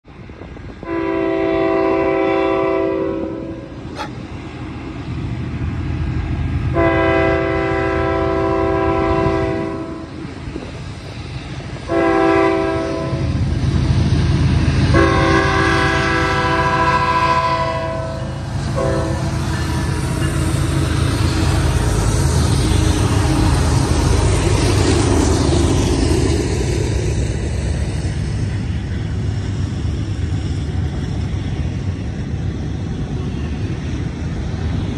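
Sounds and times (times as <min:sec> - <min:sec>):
diesel engines rumbling: 0:00.1 - 0:34.9
locomotive air horn blasts: 0:00.8 - 0:04.1, 0:06.7 - 0:10.1, 0:11.9 - 0:13.3, 0:14.9 - 0:19.4.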